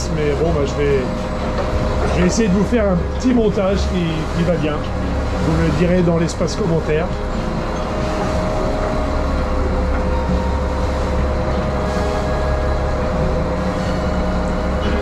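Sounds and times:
boat engine droning: 0.0 - 15.0.

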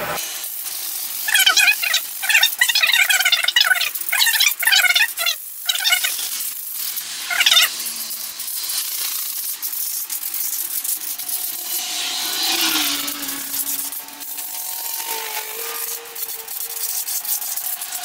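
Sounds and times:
sandpaper rubbing on metal: 0.5 - 18.0
short high-pitched cry: 7.3 - 7.8.

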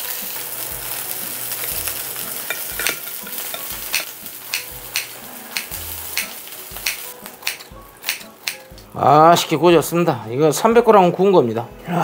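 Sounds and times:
oil sizzling in a frying pan: 0.0 - 8.8
kitchen scissors snipping: 2.3 - 8.7.

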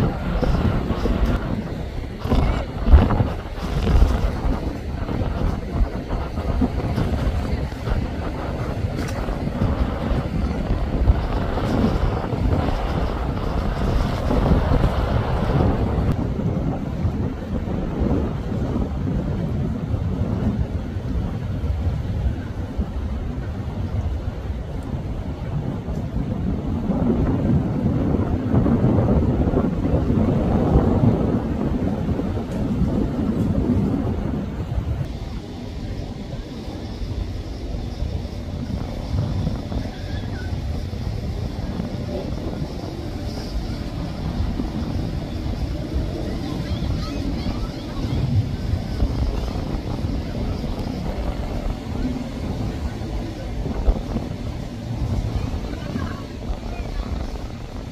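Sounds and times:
motorboats rumbling past: 0.0 - 57.9
wind on microphone: 0.0 - 57.9.

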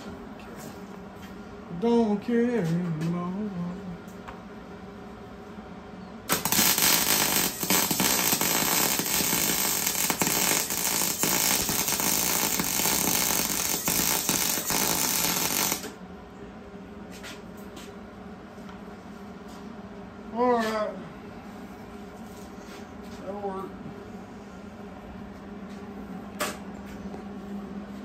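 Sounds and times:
arc welding crackling sizzle: 6.3 - 16.0.

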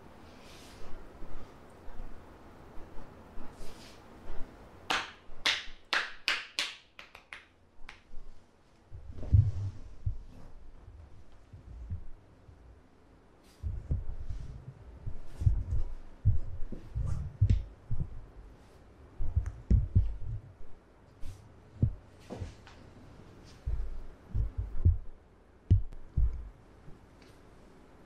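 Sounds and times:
soft low thumps: 8.9 - 12.8, 13.6 - 18.5, 19.2 - 20.8, 21.7 - 22.6, 23.5 - 27.0.

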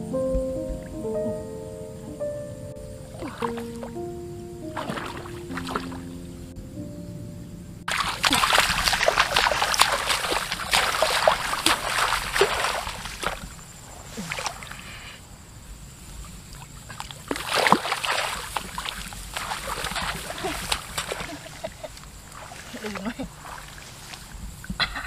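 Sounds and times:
wading through water splashing: 3.1 - 4.0, 4.7 - 6.1, 7.9 - 15.1, 16.3 - 24.6
plants rustling against legs: 7.9 - 15.0, 17.2 - 24.8.

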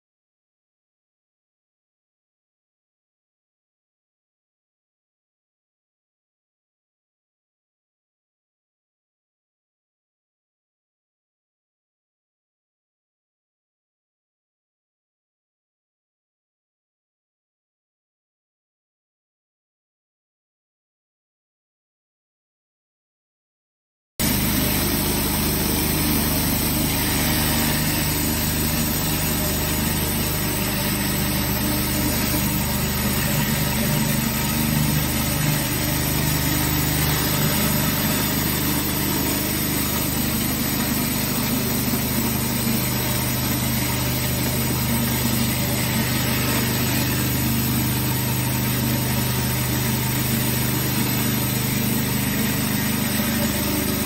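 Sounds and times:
pressure washer engine hum: 24.2 - 54.0.

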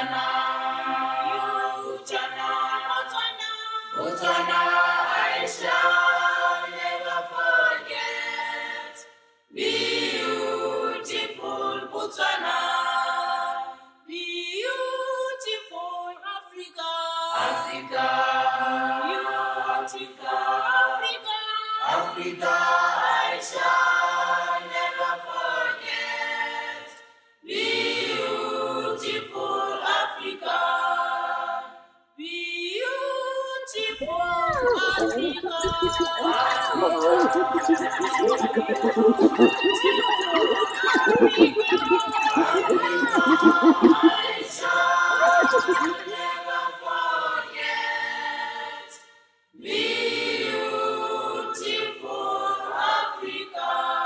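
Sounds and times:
group singing in harmony: 0.0 - 3.1, 4.0 - 9.0, 9.6 - 13.8, 21.8 - 31.8, 34.0 - 48.9, 49.6 - 54.0.

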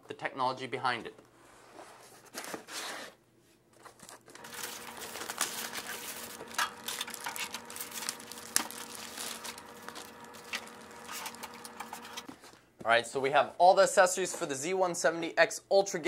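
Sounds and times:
plastic wrapping crinkling: 3.8 - 12.5.

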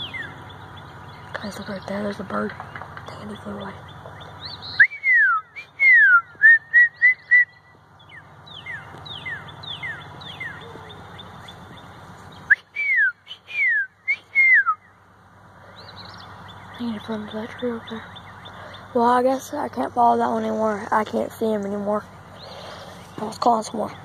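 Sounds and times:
person whistling birdsong: 4.6 - 7.7, 12.4 - 14.9.

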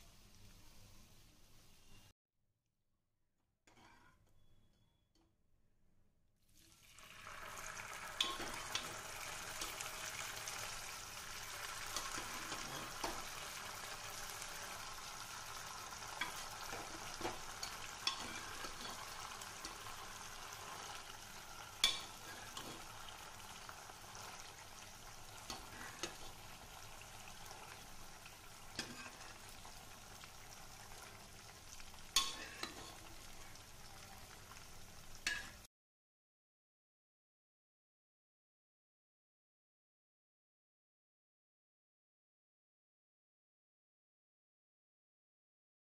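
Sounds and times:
food sizzling in a pan: 0.0 - 2.1, 6.5 - 35.7.

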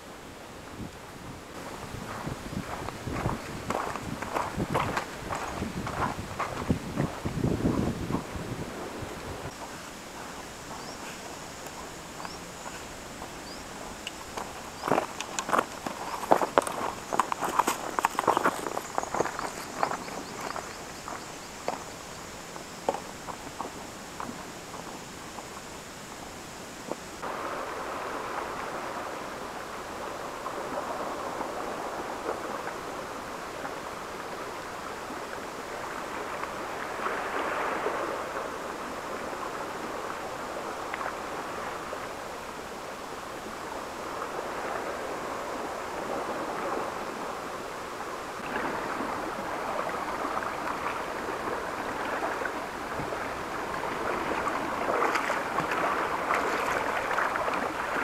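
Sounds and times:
seawater washing over rocks: 1.5 - 26.0, 26.8 - 58.0.

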